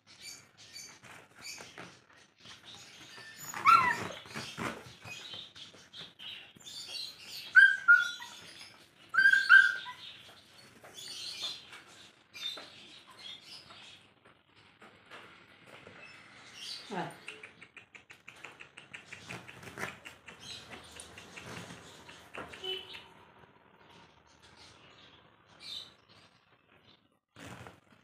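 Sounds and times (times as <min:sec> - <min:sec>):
puppies yelping: 0:03.2 - 0:04.4, 0:07.3 - 0:10.2.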